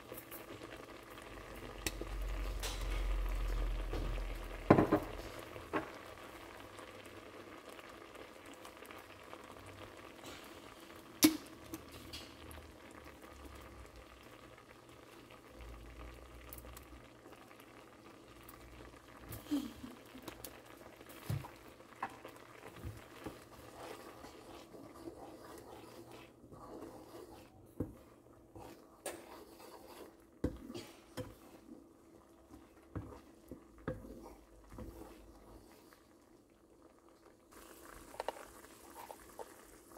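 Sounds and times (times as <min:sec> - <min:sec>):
sauce bubbling in a pan: 0:00.0 - 0:39.9
spatula tapping and scraping: 0:21.2 - 0:31.8, 0:32.5 - 0:35.7.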